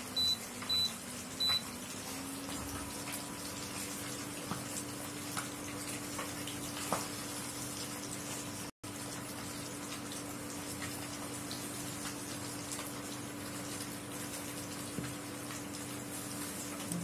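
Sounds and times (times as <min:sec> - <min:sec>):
induction cooktop hum: 0:00.0 - 0:17.0
short high beeps: 0:00.2 - 0:01.7
fish sizzling in oil: 0:00.4 - 0:16.9.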